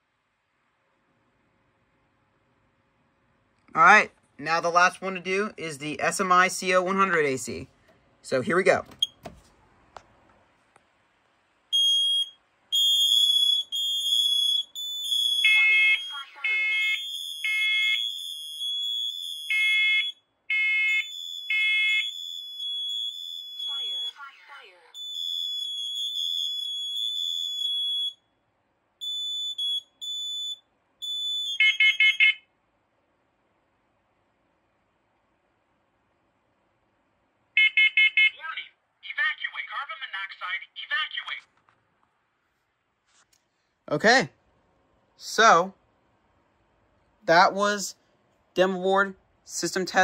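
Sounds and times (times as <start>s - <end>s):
long alarm beeps: 11.7s - 28.3s, 29.0s - 32.4s
short high-pitched alarm beep: 11.8s - 24.3s, 25.0s - 28.2s, 29.0s - 32.4s
rapid low beeps: 20.9s - 24.2s.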